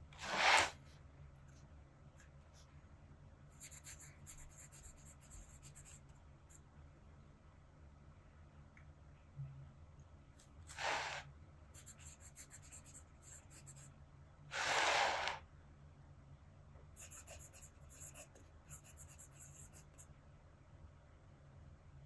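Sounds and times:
pen nib scratching on paper: 3.6 - 6.1, 11.8 - 13.9, 17.0 - 20.1.

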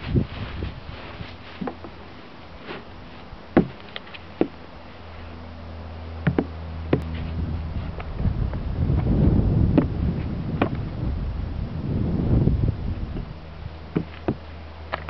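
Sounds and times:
low steady rumble: 0.0 - 15.0
sharp knocks and taps: 6.3 - 7.1.

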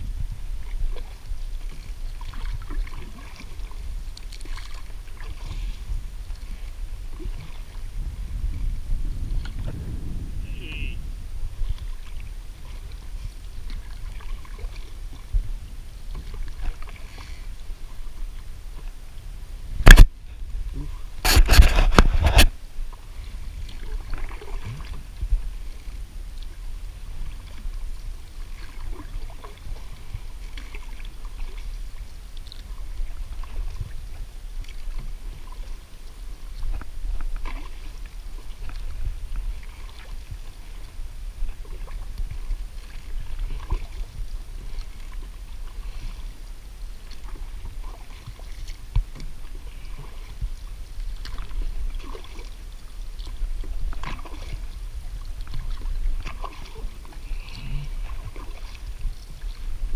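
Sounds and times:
paddle splashes: 0.0 - 59.9
low rumble: 5.0 - 14.1.

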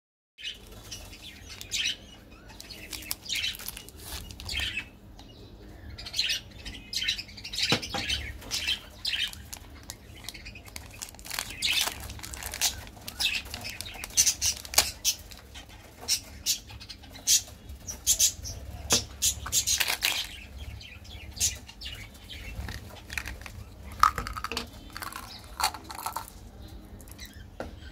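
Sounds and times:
plastic wrappers crinkling: 0.5 - 4.8, 9.0 - 15.6, 19.3 - 20.6, 22.3 - 27.2
wrapper being peeled open: 2.6 - 4.7, 9.2 - 15.4, 19.5 - 20.4, 22.5 - 26.4.

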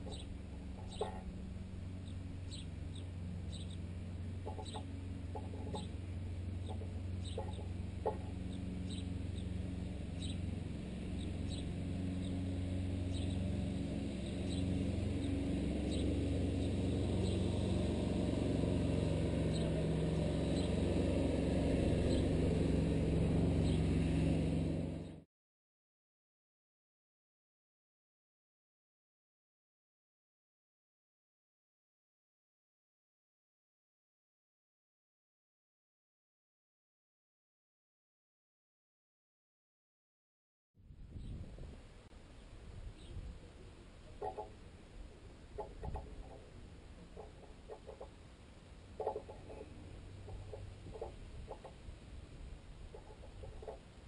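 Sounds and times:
low engine hum: 0.0 - 25.2, 40.8 - 54.0
sparrows chirping: 0.0 - 25.2, 42.3 - 53.9.

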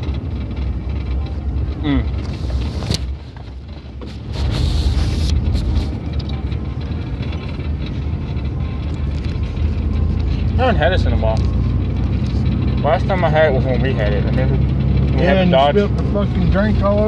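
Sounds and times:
car engine rumble: 0.0 - 17.0
road noise: 0.0 - 17.0
brief rustle: 2.2 - 6.5.

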